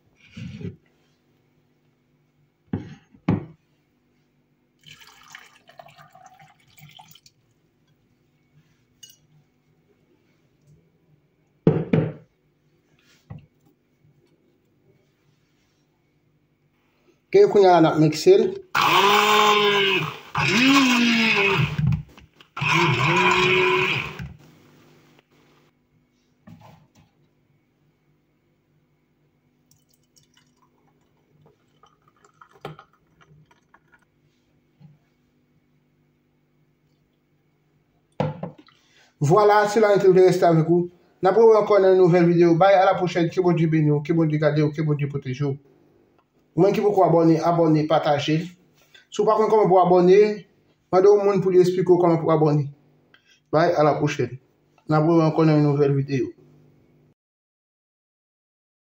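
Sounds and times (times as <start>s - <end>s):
water trickling into beaker: 4.8s - 7.4s, 29.7s - 34.1s
juice splashing into glass: 4.8s - 7.5s, 29.7s - 34.1s.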